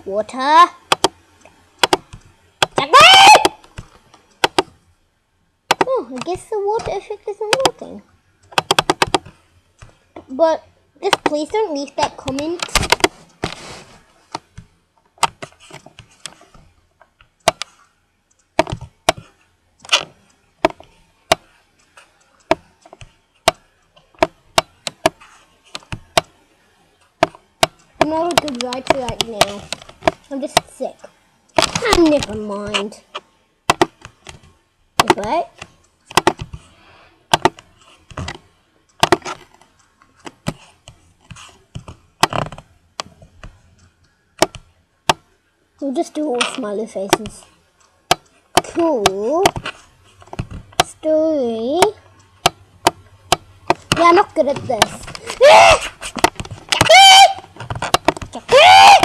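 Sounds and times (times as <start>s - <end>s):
sharp irregular taps: 0.8s - 4.8s, 5.7s - 10.3s, 11.0s - 13.6s, 14.3s - 26.4s, 27.2s - 43.6s, 44.4s - 45.3s, 47.1s - 59.0s
computer mouse clicking: 0.9s - 2.8s, 3.4s - 4.8s, 5.7s - 10.0s, 11.0s - 13.5s, 14.3s - 45.4s, 46.4s - 56.9s
faint rustling: 9.2s - 24.2s.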